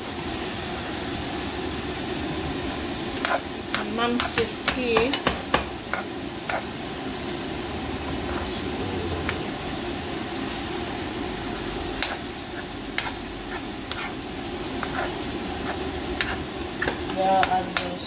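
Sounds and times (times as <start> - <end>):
meat frying in pans: 0.0 - 18.0.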